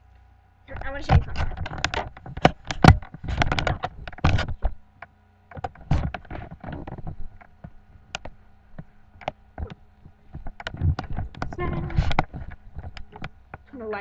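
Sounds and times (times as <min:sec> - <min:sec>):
faint steady hum: 0:00.0 - 0:14.0
camera handling knocks and rustles: 0:01.1 - 0:04.8, 0:05.5 - 0:13.7.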